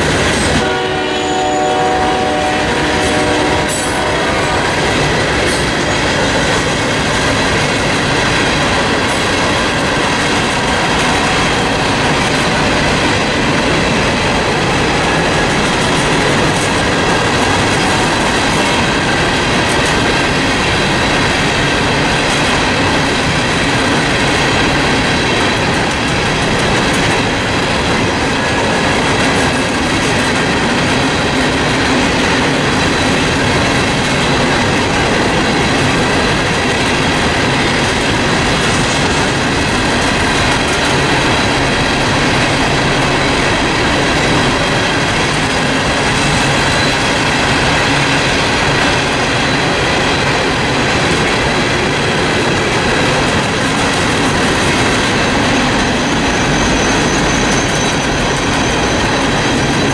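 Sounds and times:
train wheels rumbling on rail: 0:00.0 - 0:59.9
high wheel squealing: 0:55.7 - 0:59.9.

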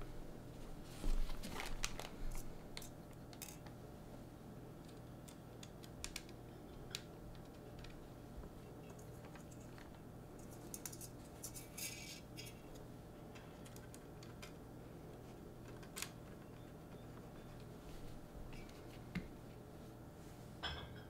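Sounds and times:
low steady hum: 0:00.0 - 0:21.0.

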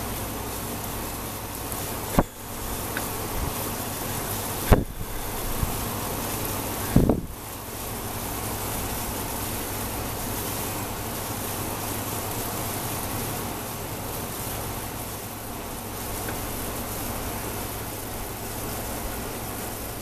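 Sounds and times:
background hiss: 0:00.0 - 0:20.0
short low thump: 0:02.2 - 0:02.4, 0:04.7 - 0:05.1.

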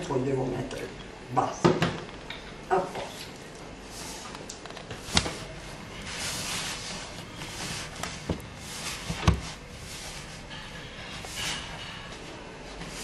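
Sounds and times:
hands mixing dough in bowl: 0:03.0 - 0:13.0.

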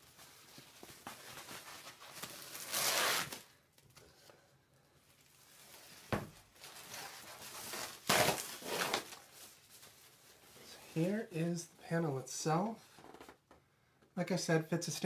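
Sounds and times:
foam packing sheets rustling: 0:00.0 - 0:03.6, 0:05.2 - 0:11.3.

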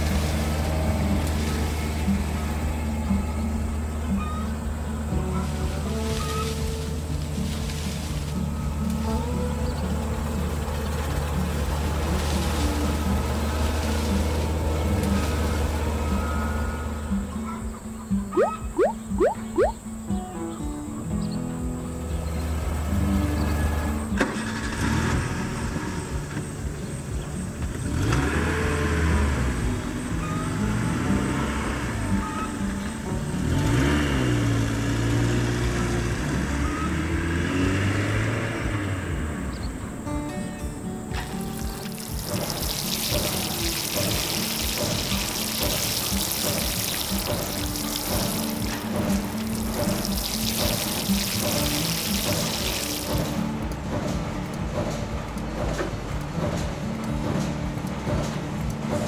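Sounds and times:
combine harvester engine hum: 0:00.0 - 0:59.0.

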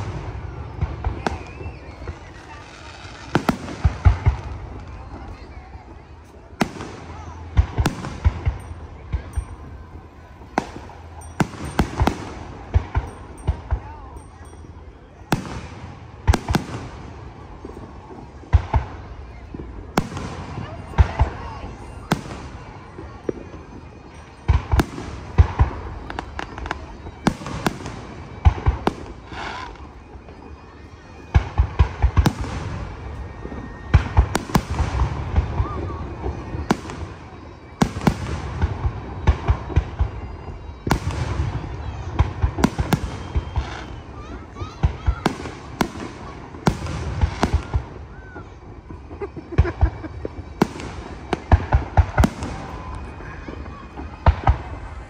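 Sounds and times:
fireworks bangs: 0:00.0 - 0:55.0
fireworks shells bursting: 0:07.7 - 0:14.7.

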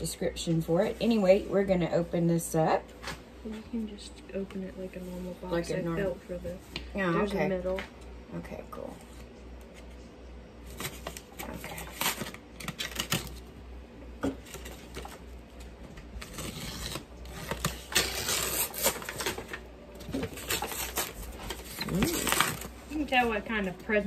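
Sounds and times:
paper crinkling and tearing: 0:10.6 - 0:13.5, 0:14.4 - 0:23.3
razor blade slicing paper and tape: 0:16.2 - 0:19.4.

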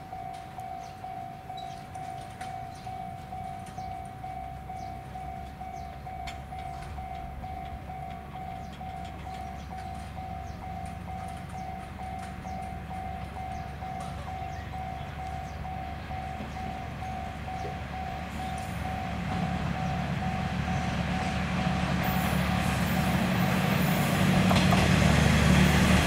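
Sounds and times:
level crossing bell ringing: 0:00.0 - 0:20.5
diesel railcar engines rumbling: 0:00.0 - 0:26.0.

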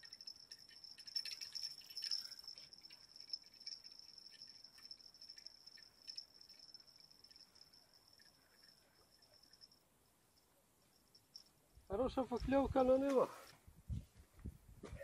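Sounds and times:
light clicks and rattles: 0:00.0 - 0:09.8.

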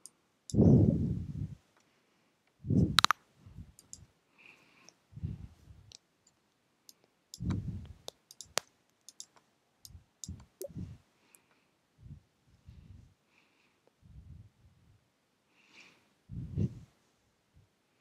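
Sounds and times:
computer mouse clicks: 0:03.0 - 0:03.2, 0:03.8 - 0:04.0, 0:05.9 - 0:10.7.

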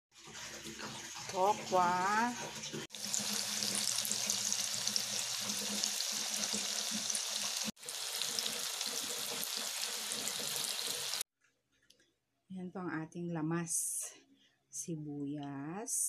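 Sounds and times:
tofu sizzling in hot oil: 0:02.9 - 0:11.2.

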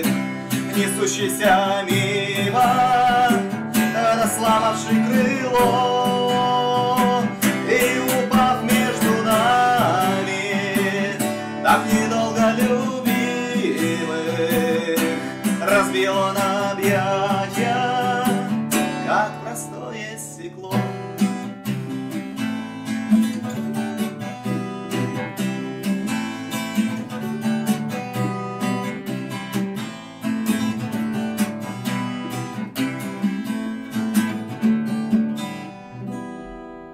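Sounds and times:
strummed acoustic guitar chords: 0:00.0 - 0:36.9.

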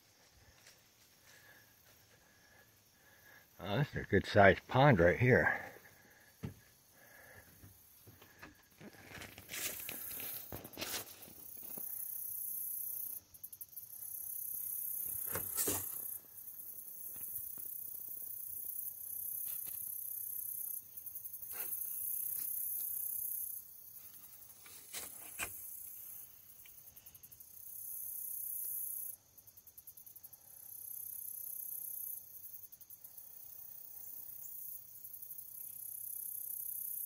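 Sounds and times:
insects trilling: 0:00.0 - 0:37.0.

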